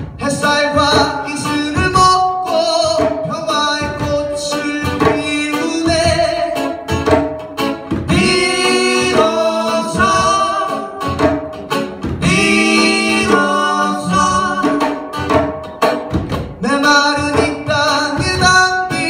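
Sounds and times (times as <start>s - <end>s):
acoustic guitar: 0.0s - 19.0s
hand drum: 0.0s - 19.0s
person singing long notes: 12.2s - 15.0s.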